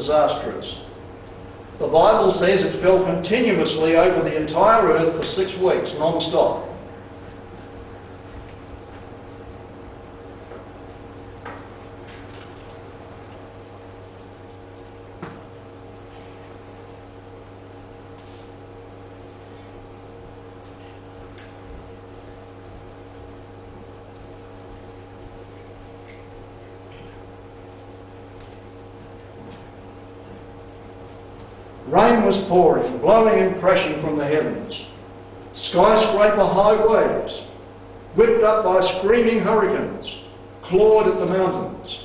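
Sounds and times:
steady electrical hum: 0:00.0 - 0:42.0.

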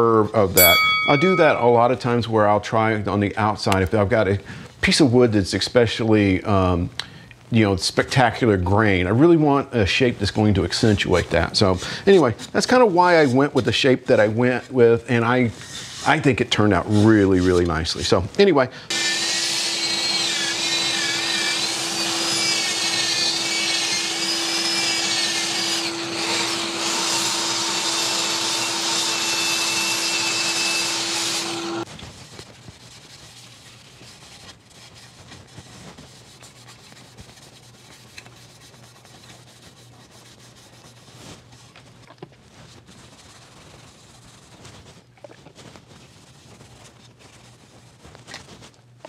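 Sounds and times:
electric machine humming and whining: 0:18.9 - 0:31.8.

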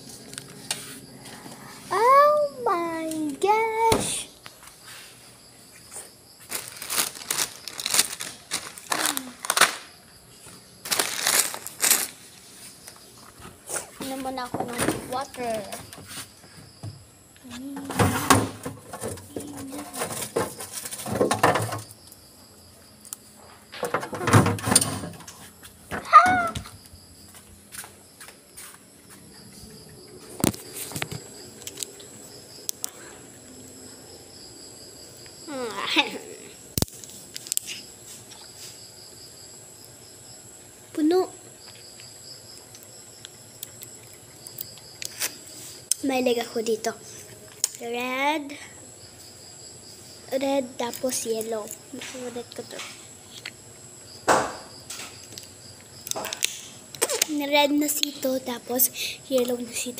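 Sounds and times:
insects chirring: 0:00.0 - 0:59.9
rustling and crinkling: 0:04.0 - 0:16.8, 0:17.4 - 0:22.1.

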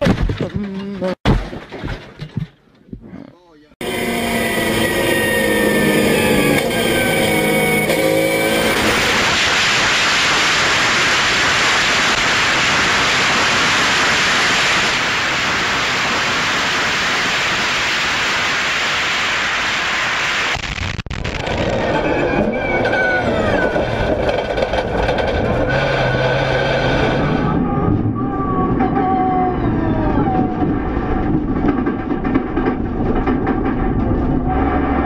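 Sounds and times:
race car engine revving: 0:03.8 - 0:10.0, 0:21.3 - 0:31.6.

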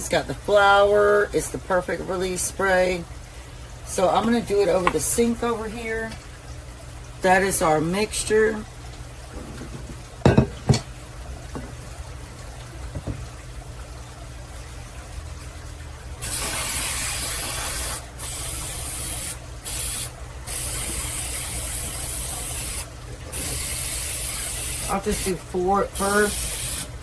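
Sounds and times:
aerosol spray hissing: 0:16.2 - 0:25.4, 0:26.0 - 0:26.9.

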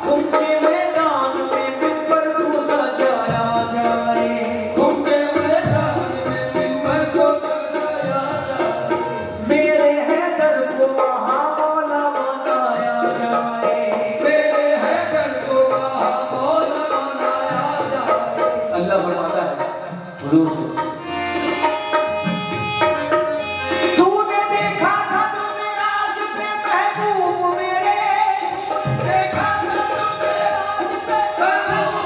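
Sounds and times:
hand drum rhythm: 0:00.0 - 0:32.0
harmonium playing chords: 0:00.0 - 0:32.0
group singing: 0:12.7 - 0:18.7, 0:27.8 - 0:32.0.

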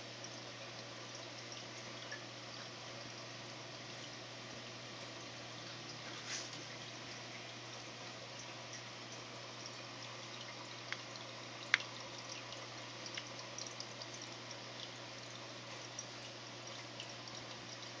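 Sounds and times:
pump hum: 0:00.0 - 0:18.0
water trickling and fizzing: 0:00.0 - 0:18.0
small ticks: 0:10.8 - 0:14.9.

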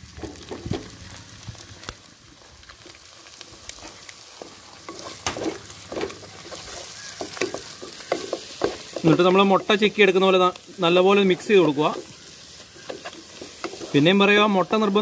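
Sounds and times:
frying sizzle: 0:00.0 - 0:15.0
spatula scraping a pot: 0:04.8 - 0:09.9, 0:11.2 - 0:14.2.

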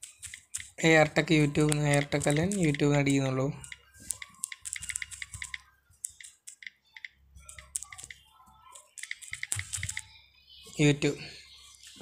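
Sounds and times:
phone keyboard clicks: 0:00.0 - 0:02.8, 0:03.6 - 0:10.1.

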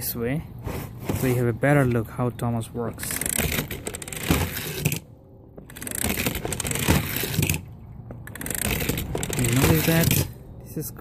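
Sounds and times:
toy train rattling on plastic track: 0:08.3 - 0:10.3.

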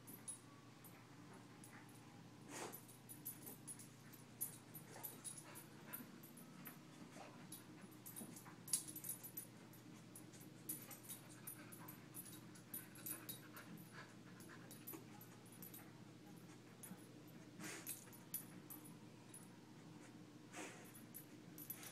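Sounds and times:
dog panting: 0:10.1 - 0:15.8.

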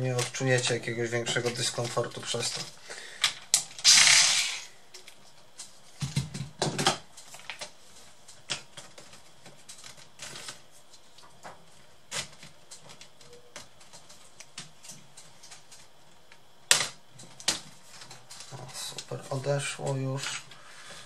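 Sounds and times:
cordless electric screwdriver: 0:03.8 - 0:04.7.

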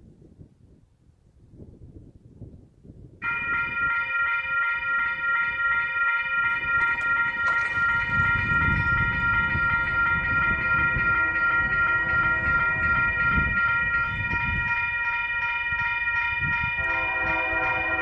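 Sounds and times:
railroad crossing bell ringing: 0:03.2 - 0:18.0.

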